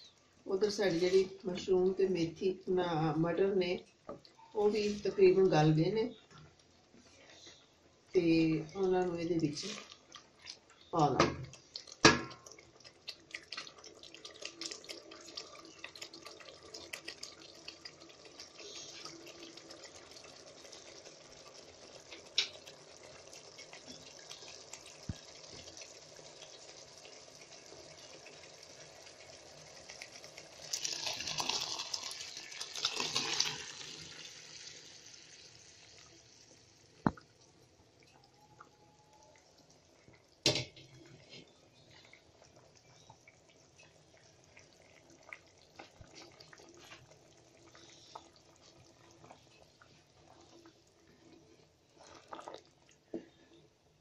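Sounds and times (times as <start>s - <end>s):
gravy simmering with crackling pops: 0.0s - 54.0s
liquid poured splashing: 11.4s - 38.6s, 44.4s - 53.4s.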